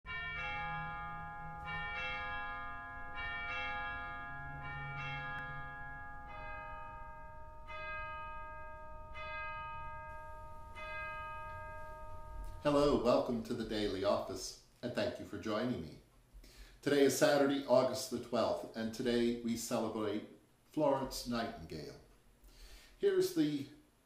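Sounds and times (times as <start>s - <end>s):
church bells ringing: 0.1s - 14.2s.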